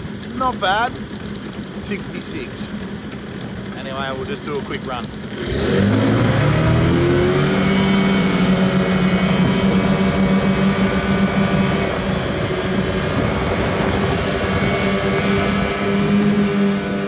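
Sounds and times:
outboard motors at high revs: 0.0s - 17.0s
rushing water and wind: 5.4s - 17.0s.

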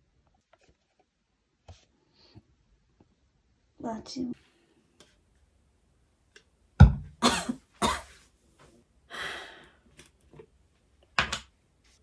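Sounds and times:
person coughing: 7.2s - 8.2s
breathy exhale: 9.1s - 9.8s.

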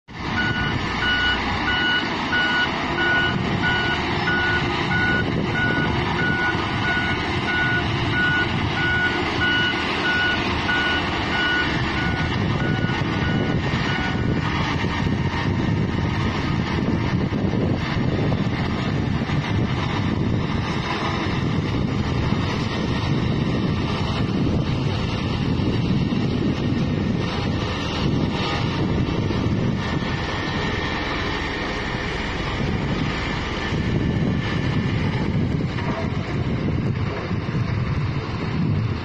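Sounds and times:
diesel engines rumbling: 0.0s - 39.0s
reversing alarm beeping: 0.3s - 14.5s.

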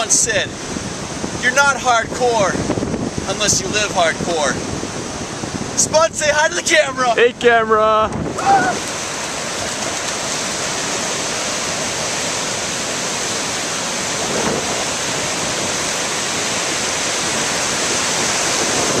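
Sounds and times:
ocean waves breaking: 0.0s - 19.0s.

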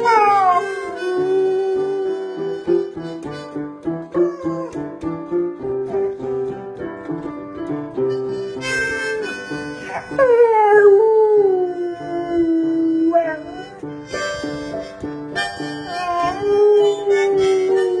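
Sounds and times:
dog howling: 0.0s - 2.3s, 10.0s - 13.7s
music: 0.0s - 18.0s.

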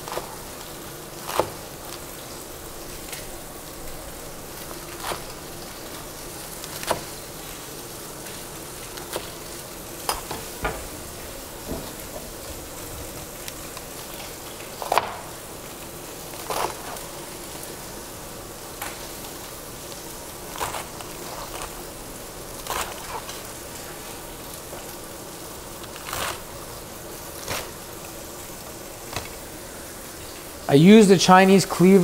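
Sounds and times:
steak sizzling in a skillet: 0.0s - 32.0s
cleaver chopping on cutting board: 14.8s - 15.2s.

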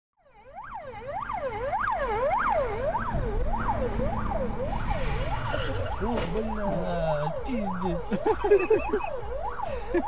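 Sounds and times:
police siren yelping: 0.2s - 10.0s
low rumble: 2.8s - 8.2s.

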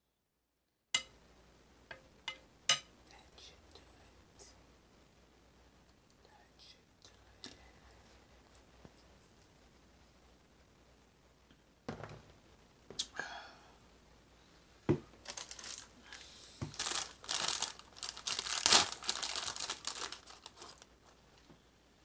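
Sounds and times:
knock: 11.9s - 12.3s
cracker wrapper crinkling and tearing: 15.2s - 21.2s.

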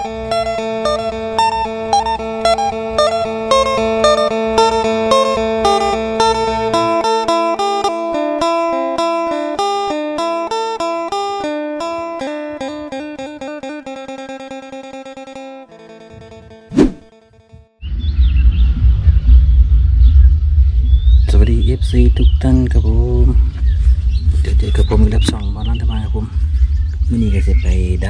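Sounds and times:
plucked string instrument music: 0.0s - 16.7s.

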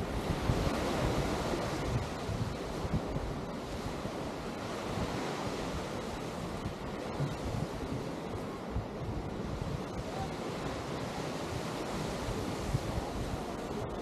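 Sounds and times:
surf washing onto beach: 0.0s - 14.0s
wind buffeting microphone: 0.0s - 14.0s.

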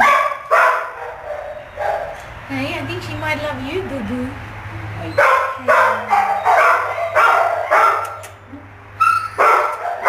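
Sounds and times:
dog barking: 0.0s - 2.2s, 5.2s - 8.3s, 9.0s - 10.0s.

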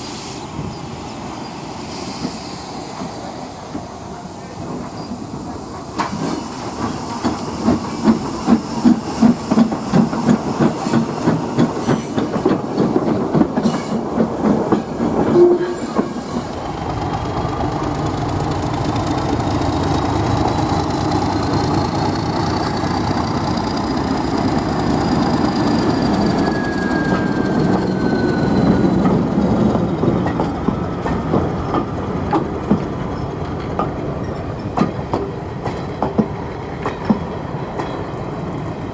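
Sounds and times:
train wheels clicking over rail joints: 4.7s - 38.3s
faint high squeal: 25.6s - 29.4s.

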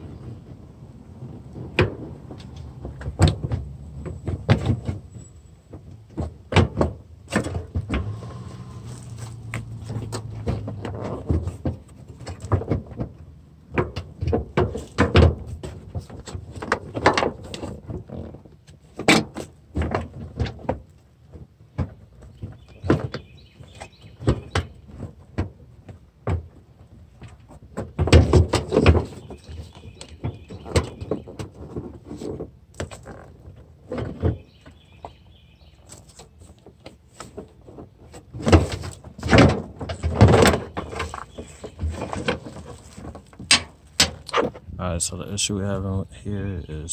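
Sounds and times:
hard parts knocking and rattling: 36.7s - 44.7s.

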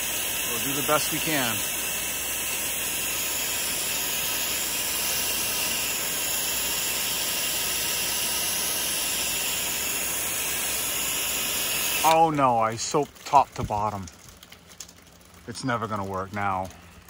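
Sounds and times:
spray wand hissing jet: 0.0s - 12.3s.

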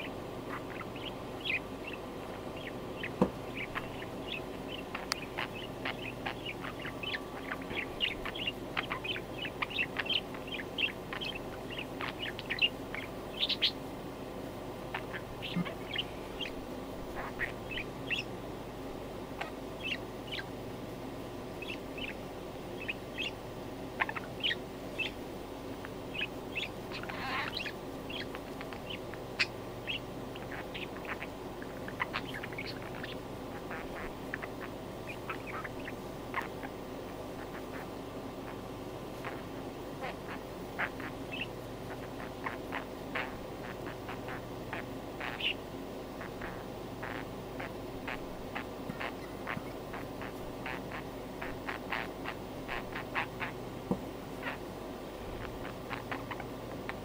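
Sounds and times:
budgerigar sweeping call: 0.0s - 2.0s, 2.6s - 13.8s, 14.9s - 18.3s, 22.8s - 23.4s, 24.0s - 25.2s, 26.1s - 36.7s, 39.2s - 45.6s, 46.2s - 53.6s
budgerigar chattering in high chirps: 0.0s - 13.8s, 14.9s - 18.3s, 19.4s - 20.5s, 21.6s - 22.2s, 22.8s - 23.4s, 24.0s - 25.2s, 26.1s - 36.8s, 37.4s - 38.6s, 39.2s - 45.6s, 46.2s - 53.6s, 55.4s - 56.6s.

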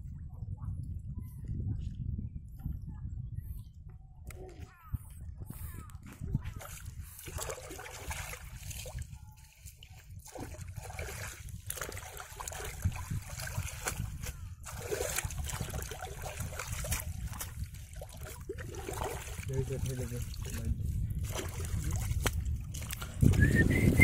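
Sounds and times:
hands splashing in muddy water: 6.5s - 23.7s.

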